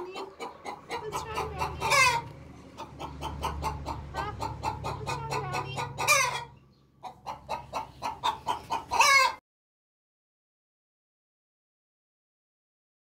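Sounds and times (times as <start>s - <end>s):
hen clucking: 0.0s - 9.4s
hen squawk: 0.0s - 9.4s.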